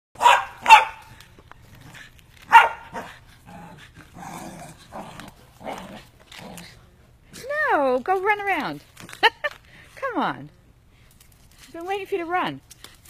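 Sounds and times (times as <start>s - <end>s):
dogs barking: 0.2s - 1.1s, 2.5s - 3.1s
dogs play noises: 0.2s - 9.9s.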